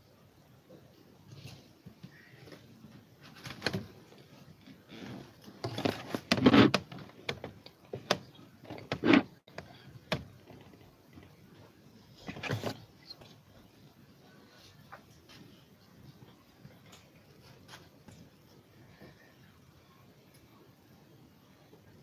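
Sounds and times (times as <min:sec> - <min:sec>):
handling knocks and clicks: 0:05.5 - 0:11.4.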